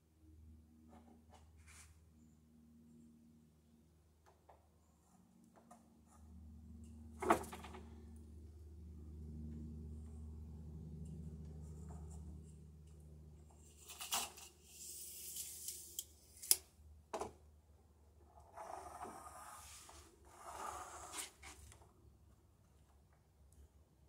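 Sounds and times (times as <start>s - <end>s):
tape measure clicks: 13.8s - 16.7s.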